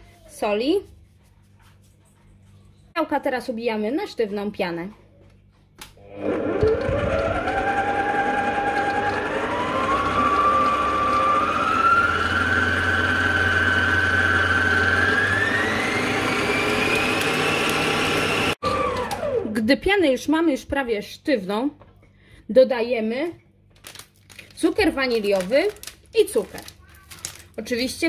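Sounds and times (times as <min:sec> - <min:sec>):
stand mixer motor whine: 0:06.0 - 0:19.5.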